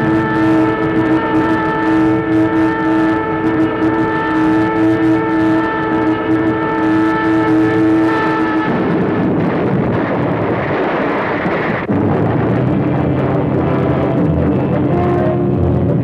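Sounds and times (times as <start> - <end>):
low engine drone: 0.0 - 16.0.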